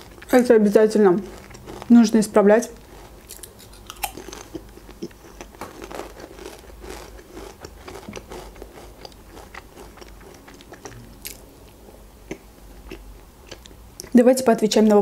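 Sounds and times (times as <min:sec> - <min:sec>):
crunching potato chips: 0:00.0 - 0:11.4
person chewing soft cake: 0:00.0 - 0:14.2.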